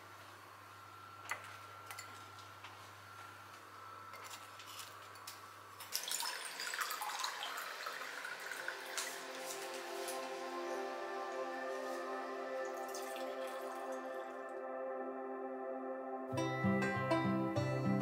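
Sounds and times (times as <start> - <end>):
water pouring into a glass: 5.9 - 10.3, 12.6 - 14.5.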